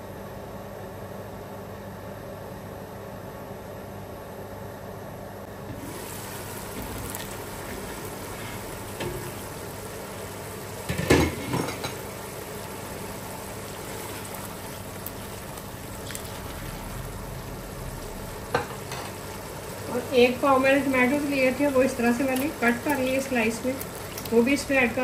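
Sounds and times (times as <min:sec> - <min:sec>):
food sizzling in a pot: 0:05.6 - 0:25.0
metal cookware clatter: 0:10.9 - 0:12.0.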